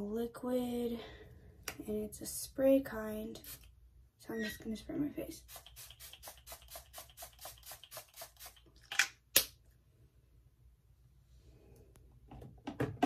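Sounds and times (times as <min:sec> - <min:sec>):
spray bottle hissing: 0:03.4 - 0:03.7, 0:05.4 - 0:08.7.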